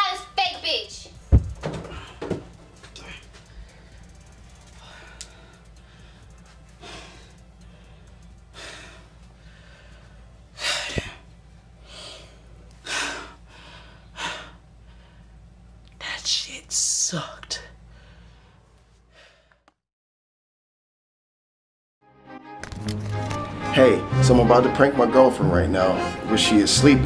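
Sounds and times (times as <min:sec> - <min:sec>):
person breathing heavily: 0:01.8 - 0:02.3, 0:03.0 - 0:15.4, 0:17.8 - 0:19.6.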